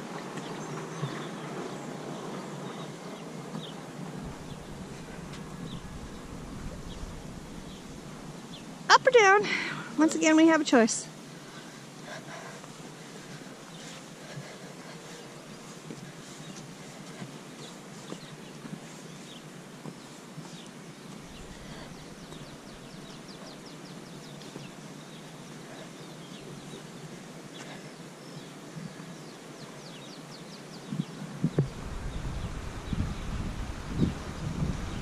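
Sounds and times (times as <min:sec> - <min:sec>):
wind rumbling on microphone: 0:03.6 - 0:08.9, 0:21.2 - 0:23.8, 0:30.8 - 0:35.0
birds chirping and calling: 0:20.5 - 0:26.9.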